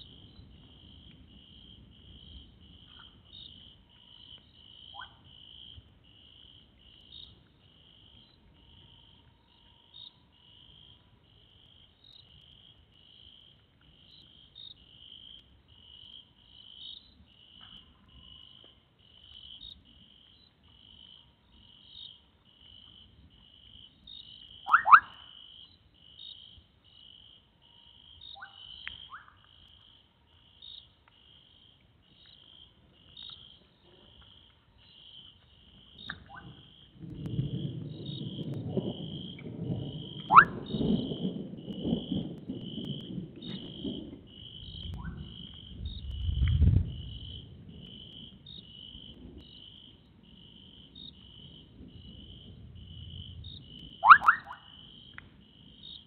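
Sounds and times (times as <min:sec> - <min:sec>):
insects chirping: 0:00.0 - 0:56.0
frog calls: 0:04.8 - 0:05.3, 0:24.6 - 0:25.6, 0:28.2 - 0:29.4, 0:36.0 - 0:36.9, 0:40.0 - 0:42.2, 0:53.8 - 0:55.0.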